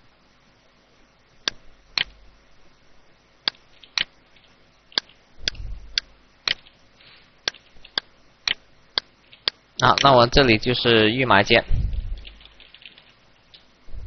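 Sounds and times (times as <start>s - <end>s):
computer mouse clicking: 3.4s - 6.7s, 7.4s - 10.1s, 11.9s - 13.7s
short low thump: 11.7s - 12.2s.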